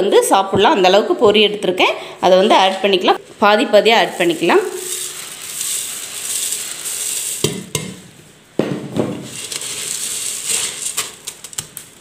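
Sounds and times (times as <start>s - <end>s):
puffed rice rustling into steel bowl: 3.9s - 8.4s, 9.0s - 12.0s.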